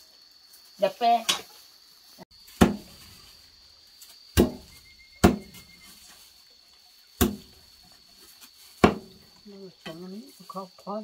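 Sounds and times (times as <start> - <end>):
sharp ringing knocks: 4.4 - 5.8
faint high-pitched tone: 4.7 - 6.2.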